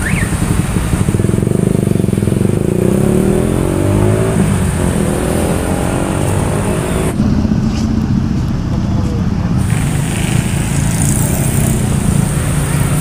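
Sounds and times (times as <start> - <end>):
street traffic: 0.0 - 13.0
motorcycle engine accelerating: 0.3 - 13.0.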